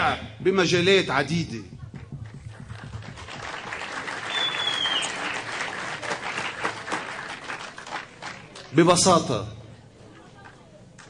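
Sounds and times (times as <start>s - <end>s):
audience applauding: 2.0s - 8.8s
high whistle: 4.2s - 5.4s.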